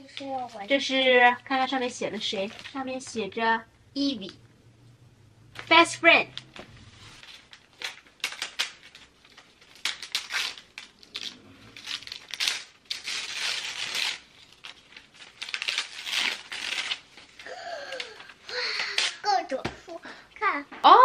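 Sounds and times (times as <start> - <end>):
wrapping paper tearing and rustling: 2.2 - 2.8, 6.4 - 19.5.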